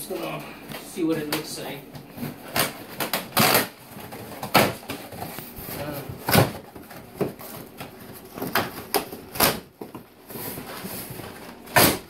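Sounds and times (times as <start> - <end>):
cardboard box tape tearing: 2.4 - 5.2, 10.3 - 12.0.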